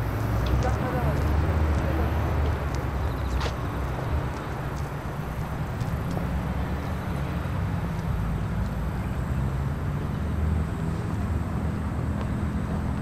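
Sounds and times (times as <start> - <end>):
city traffic rumble: 0.0 - 13.0.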